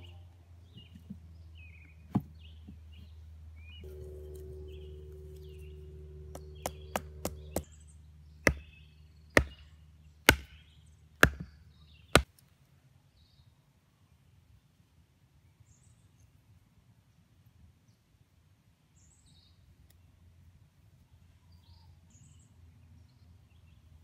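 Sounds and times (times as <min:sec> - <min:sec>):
hatchet striking wooden stake: 0:06.3 - 0:07.8, 0:08.4 - 0:12.4.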